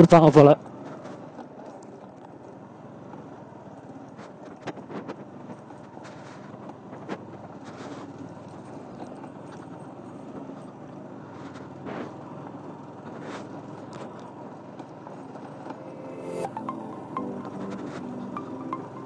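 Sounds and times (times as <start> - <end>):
motorcycle engine at low speed: 0.6 - 15.7.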